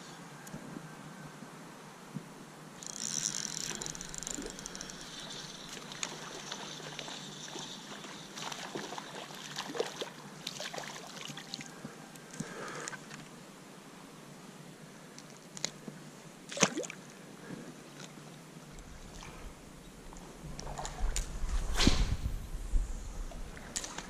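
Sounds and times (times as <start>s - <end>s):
water splashing and trickling: 3.6s - 11.7s, 16.5s - 17.0s.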